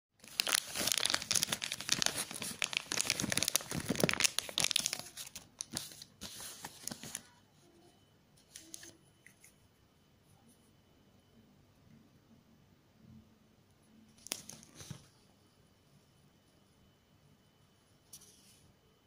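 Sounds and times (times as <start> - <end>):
plastic pouch crinkling: 0.2 - 7.3, 14.2 - 15.0.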